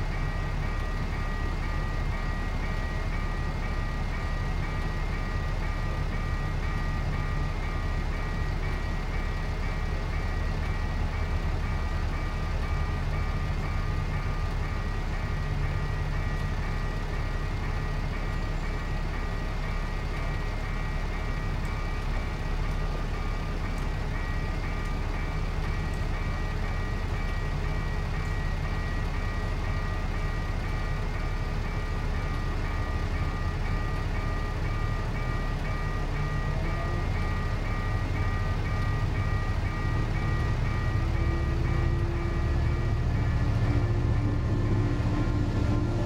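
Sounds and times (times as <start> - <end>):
diesel locomotive engine rumble: 0.0 - 46.0
level-crossing warning bell ringing: 0.0 - 46.0.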